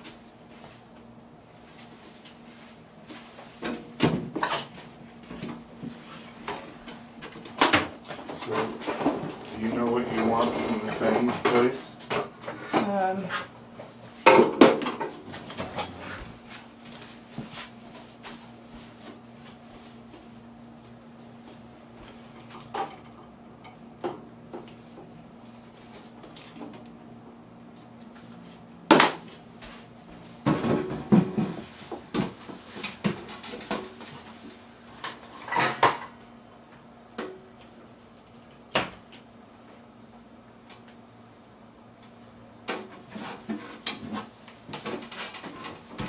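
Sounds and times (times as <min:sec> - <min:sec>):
dishes and pots clattering: 0:35.4 - 0:36.1.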